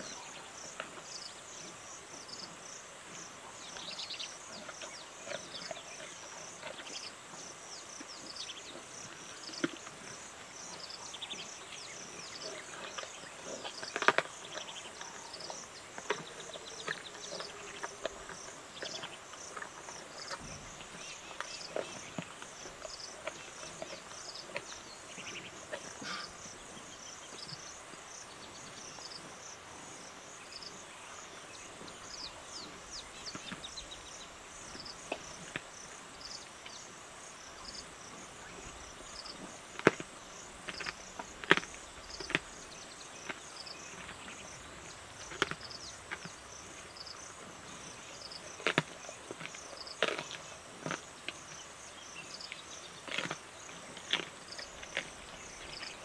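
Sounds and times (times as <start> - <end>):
insects chirping: 0.0 - 56.0
animal chewing and crunching bones: 3.1 - 27.7, 38.0 - 56.0.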